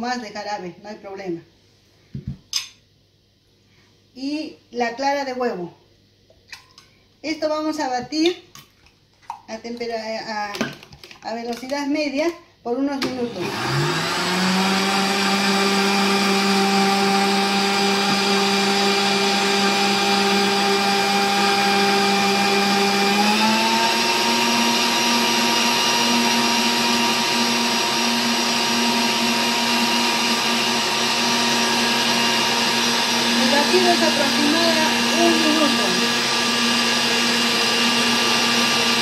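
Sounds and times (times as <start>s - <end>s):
electric blender running: 13.0s - 39.0s.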